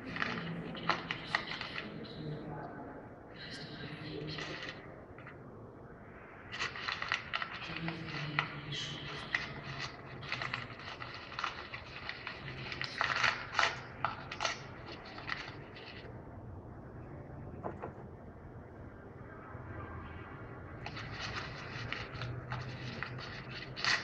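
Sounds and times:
parrot clicking and scraping: 6.5s - 16.1s, 20.8s - 24.0s.

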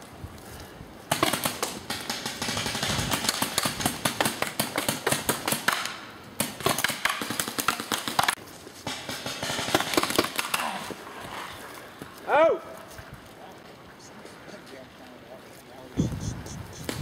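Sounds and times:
paintball markers firing rapid volleys: 1.1s - 10.7s.

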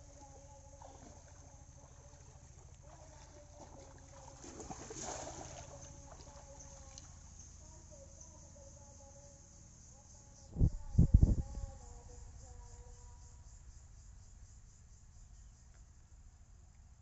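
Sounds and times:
faint water sloshing: 0.0s - 8.2s
faint low hum: 0.0s - 17.0s
net splashing into water: 0.8s - 7.1s.

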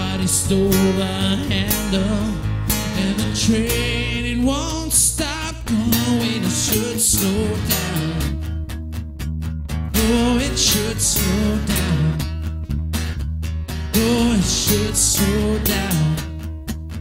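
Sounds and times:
man singing: 0.0s - 8.5s, 9.9s - 12.4s, 13.9s - 16.4s
electric bass: 0.0s - 17.0s
strummed acoustic guitars: 0.0s - 17.0s.

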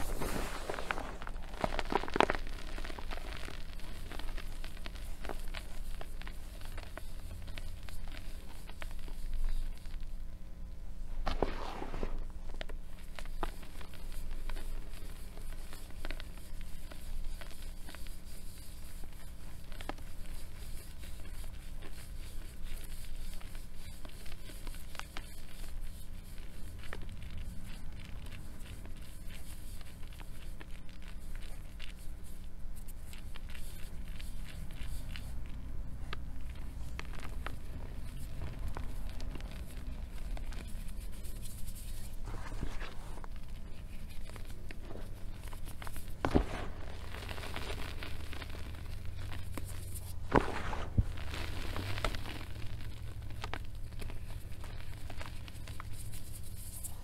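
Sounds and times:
hands crumbling chalk: 0.0s - 9.9s, 11.3s - 57.0s.

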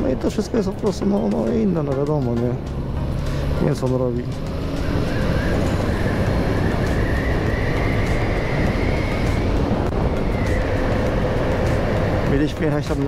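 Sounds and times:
motorcycle engine running: 0.0s - 13.0s
wind noise: 4.6s - 12.3s.

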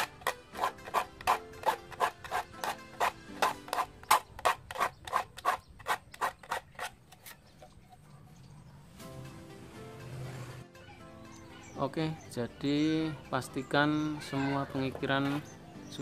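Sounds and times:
file rasping on saw teeth: 0.0s - 7.4s.

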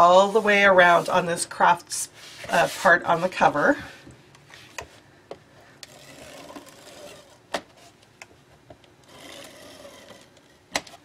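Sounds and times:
tape runner whirring: 9.0s - 10.9s.

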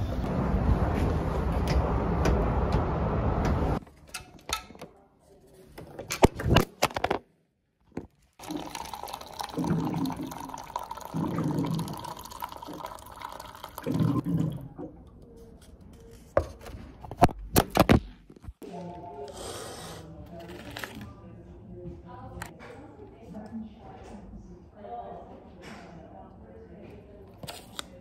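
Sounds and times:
water pouring into paper cup: 8.4s - 14.8s.

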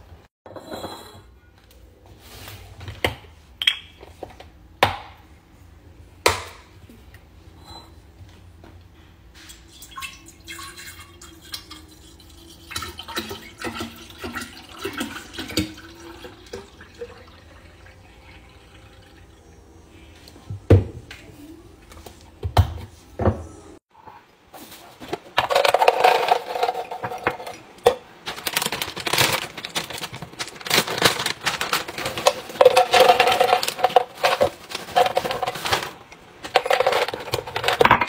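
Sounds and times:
milk pouring into glass carafe: 9.7s - 19.4s.

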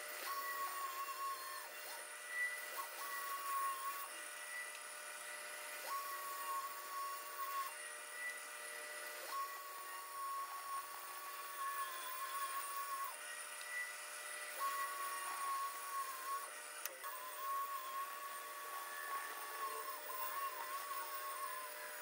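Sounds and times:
saw blade cutting whine: 0.0s - 22.0s
scroll saw running: 0.0s - 22.0s.

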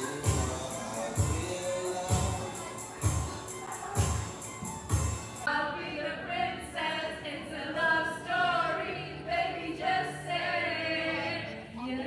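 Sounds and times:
roomful of voices singing along: 0.0s - 3.7s, 5.5s - 12.0s
pop backing track: 0.0s - 5.5s.

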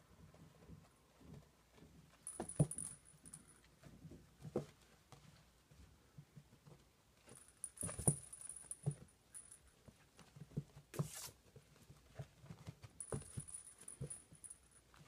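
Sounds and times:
small jingling: 2.1s - 3.7s, 7.2s - 10.0s, 12.7s - 15.0s.

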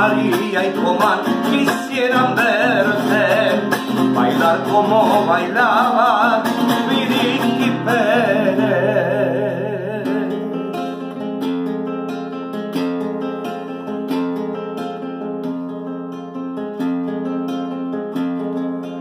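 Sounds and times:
classical guitar strumming: 0.0s - 19.0s
man singing a long note: 4.2s - 10.6s.

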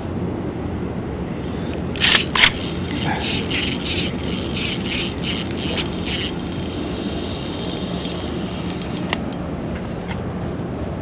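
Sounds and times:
steady low hum: 0.0s - 11.0s
fishing reel gears whirring: 1.4s - 9.6s
small clicks: 7.5s - 9.4s.

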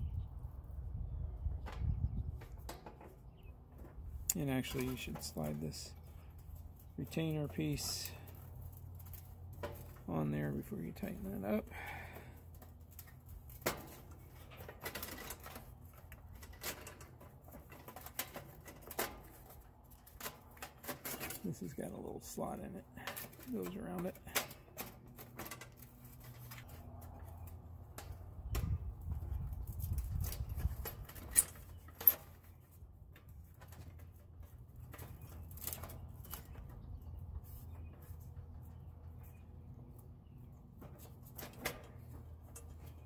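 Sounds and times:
small metal clicks: 22.9s - 36.8s
metal parts clicking and tapping: 29.7s - 32.5s.

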